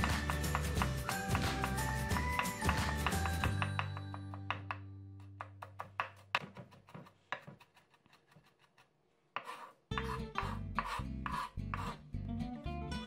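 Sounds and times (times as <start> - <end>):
knife chopping on wooden board: 0.0 - 12.0
knife blade scraping board: 6.0 - 12.0
acoustic guitar music: 10.2 - 13.0.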